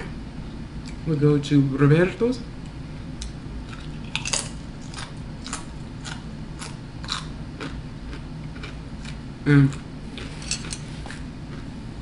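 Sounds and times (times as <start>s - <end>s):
chip crunching: 3.7s - 11.7s.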